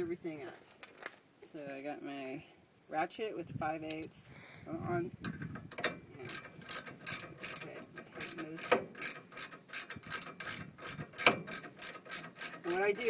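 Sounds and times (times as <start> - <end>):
ratchet wrench clicking: 5.5 - 13.0.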